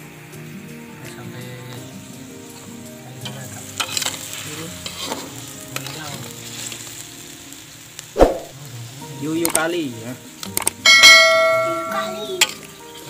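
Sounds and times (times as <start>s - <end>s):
crabs sizzling in sauce in a wok: 0.0s - 13.0s
metal spatula scraping wok: 3.8s - 6.0s.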